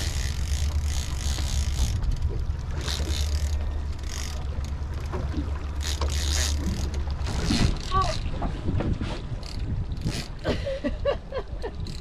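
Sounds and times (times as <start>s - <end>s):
fishing reel ratchet clicking: 0.0s - 4.8s, 5.8s - 8.2s, 9.4s - 10.4s.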